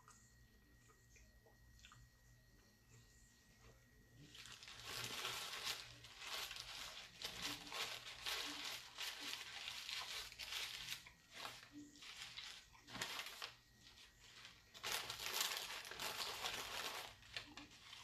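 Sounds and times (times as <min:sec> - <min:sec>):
paper wrapper crinkling: 0:04.2 - 0:18.0.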